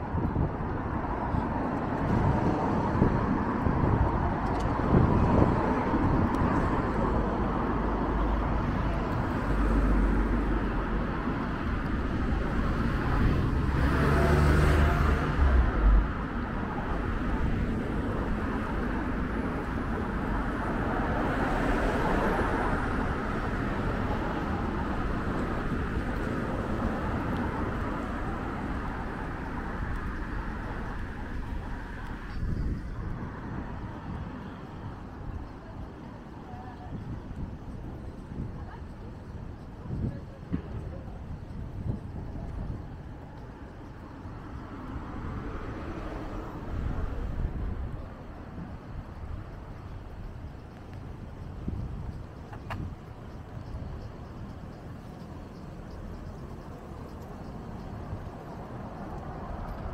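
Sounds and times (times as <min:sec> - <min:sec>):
vehicle passing with low rumble: 0:00.0 - 0:34.2
city street traffic: 0:00.0 - 0:59.9.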